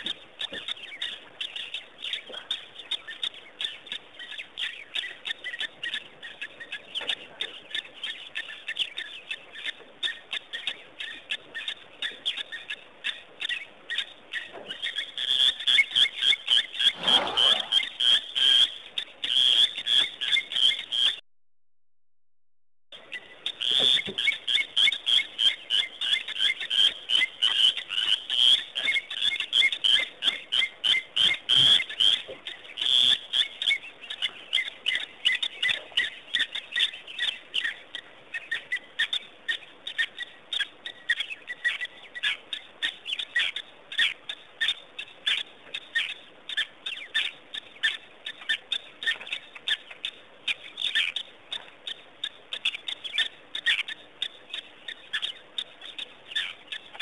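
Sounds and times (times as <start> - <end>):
frogs calling in pulses: 14.4 - 21.2, 23.3 - 57.0.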